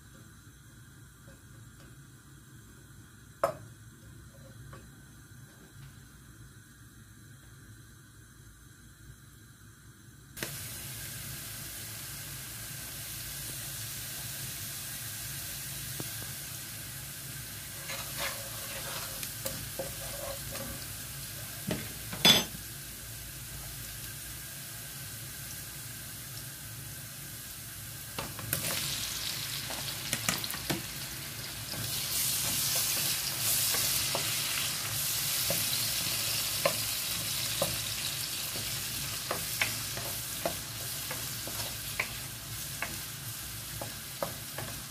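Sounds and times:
garlic sizzling in oil: 0:10.4 - 0:44.9
wooden spoon stirring in pan: 0:17.6 - 0:22.0, 0:28.2 - 0:44.9.

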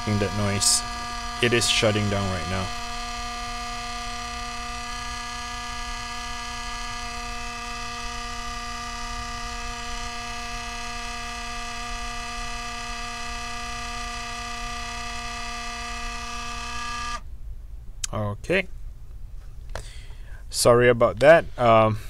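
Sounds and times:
fan blade scraping metal: 0:00.0 - 0:17.2
laptop fan buzzing: 0:00.0 - 0:17.3.

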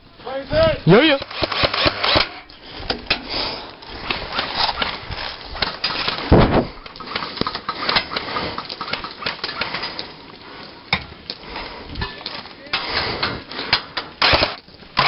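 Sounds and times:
airsoft gun firing: 0:01.2 - 0:02.4, 0:14.2 - 0:14.6.

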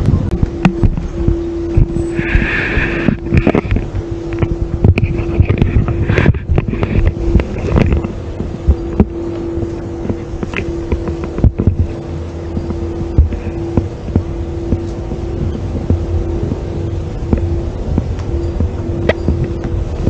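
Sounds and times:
steady hum: 0:00.0 - 0:20.0
wind buffeting microphone: 0:00.0 - 0:20.0.

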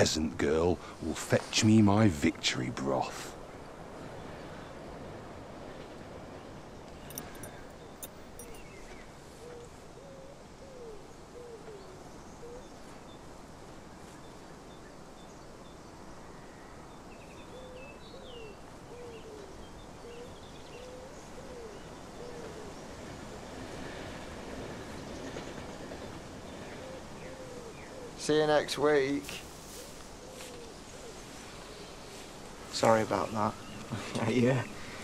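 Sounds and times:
faint open-air ambience: 0:00.0 - 0:35.0
bird chirping: 0:07.0 - 0:09.7
dove cooing: 0:20.1 - 0:22.8, 0:26.6 - 0:28.2.

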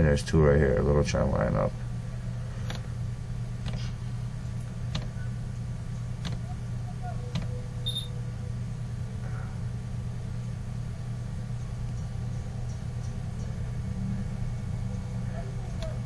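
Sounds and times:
low background hum: 0:00.0 - 0:16.0
sharp click: 0:03.6 - 0:05.2, 0:06.2 - 0:06.5, 0:07.3 - 0:08.1
brief high beep: 0:07.9 - 0:08.1.

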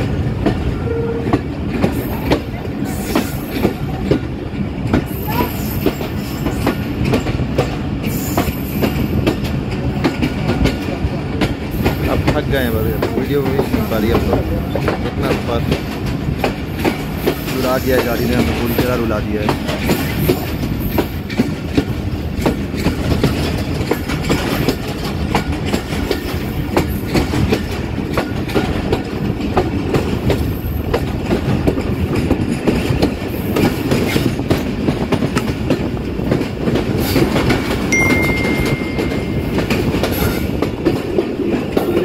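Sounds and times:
train rumbling: 0:00.0 - 0:42.0
train wheels clacking over track: 0:00.0 - 0:42.0
thin high steady tone: 0:37.9 - 0:39.7.

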